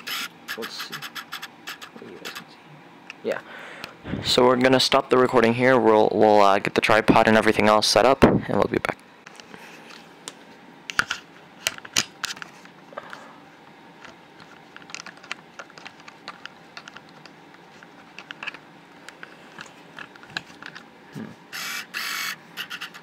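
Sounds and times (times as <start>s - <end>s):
camera handling clicks and rustles: 14.0s - 20.9s.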